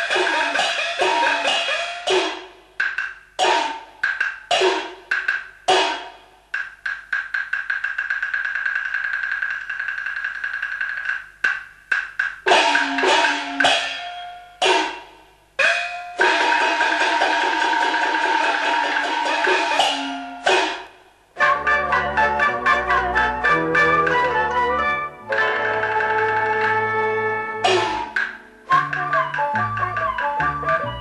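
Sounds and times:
struck percussion with falling pitch: 0:00.0 - 0:21.0, 0:27.6 - 0:31.0
wood-block strikes: 0:00.0 - 0:21.5, 0:25.2 - 0:31.0
fast drum roll: 0:16.2 - 0:21.0.

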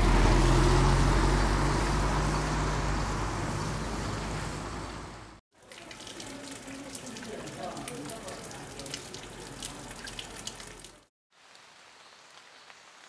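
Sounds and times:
road noise hiss: 0:00.0 - 0:05.4
vehicle engine humming: 0:00.0 - 0:05.4.

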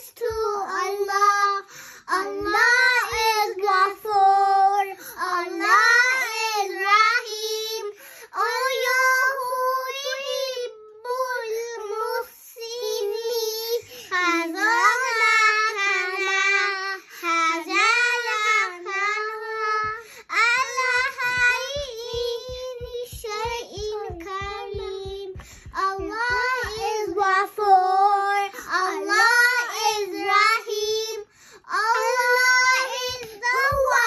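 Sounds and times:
girls singing unaccompanied: 0:00.0 - 0:34.0
soft low thumps: 0:20.6 - 0:27.4, 0:33.0 - 0:34.0.

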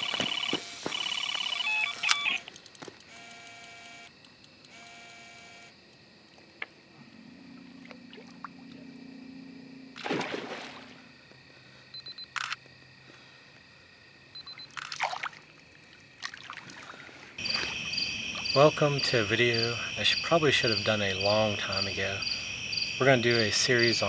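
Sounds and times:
electronic bite alarm beeping: 0:00.0 - 0:02.5, 0:11.9 - 0:12.6, 0:14.4 - 0:14.8
lower-pitched alarm tones: 0:00.0 - 0:02.5, 0:03.1 - 0:04.1, 0:04.7 - 0:05.7
water splashing: 0:07.3 - 0:08.9, 0:10.0 - 0:11.1, 0:14.8 - 0:15.6, 0:16.2 - 0:18.4.

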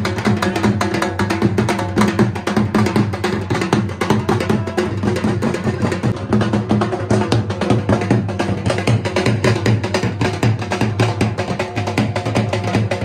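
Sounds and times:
barrel drum fast rhythm: 0:00.0 - 0:13.0.

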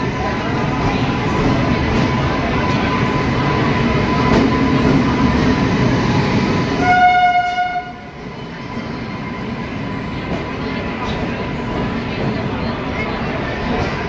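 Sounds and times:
train rumbling on tracks: 0:00.0 - 0:14.0
train horn blast: 0:06.8 - 0:08.1.

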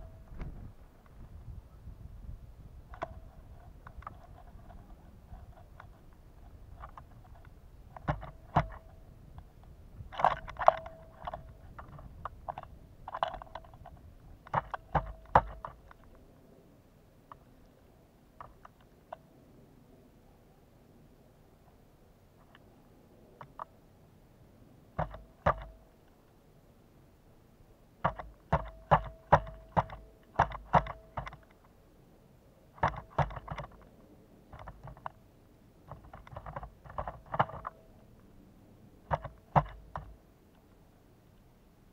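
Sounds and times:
woodpecker pecking knocks: 0:08.0 - 0:08.9, 0:10.1 - 0:16.0, 0:25.0 - 0:25.8, 0:28.0 - 0:31.5, 0:32.8 - 0:33.8, 0:35.9 - 0:37.8, 0:39.1 - 0:40.2.

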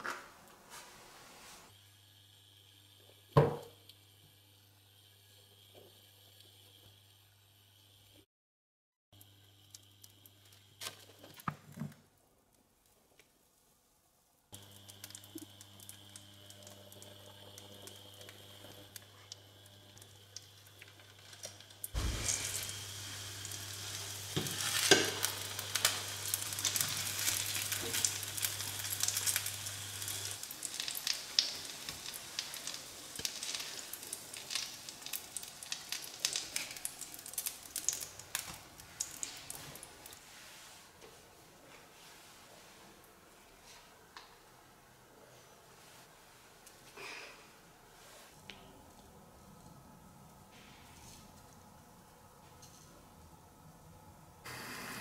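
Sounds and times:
bread frying and crackling: 0:09.2 - 0:41.0
butter sizzling in a frying pan: 0:14.6 - 0:39.9.

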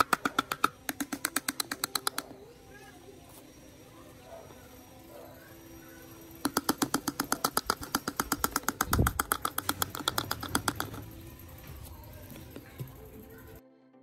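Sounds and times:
spoon tapping plastic funnel: 0:00.0 - 0:02.3, 0:06.4 - 0:13.6.

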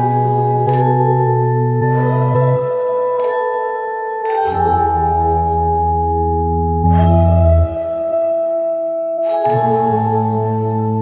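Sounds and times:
slow music of ringing tones: 0:00.0 - 0:11.0
deep sustained bass notes: 0:04.5 - 0:08.4.

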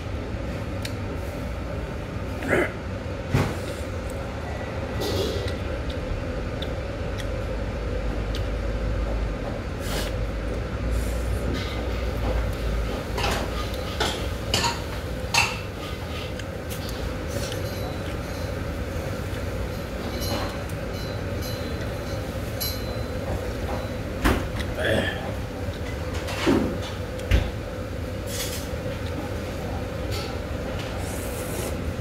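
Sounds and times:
steady low hum: 0:00.0 - 0:32.0
utensils clinking against bowl: 0:13.2 - 0:18.8, 0:19.7 - 0:24.0.

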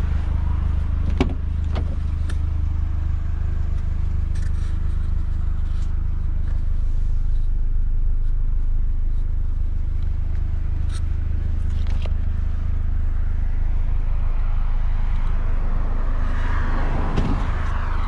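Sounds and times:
car engine idling: 0:00.0 - 0:18.0
car door latch clicking: 0:01.1 - 0:02.0.

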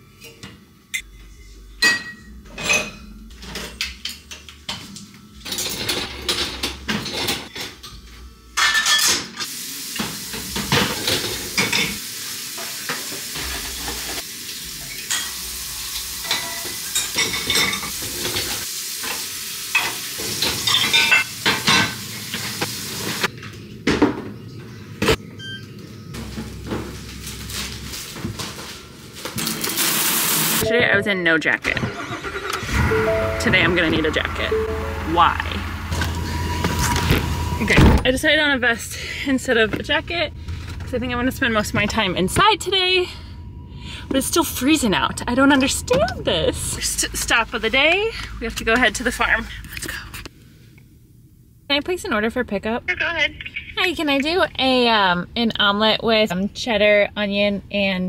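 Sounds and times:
dishes and cutlery clinking: 0:00.2 - 0:09.5
dishwasher racks rattling: 0:05.4 - 0:07.8.

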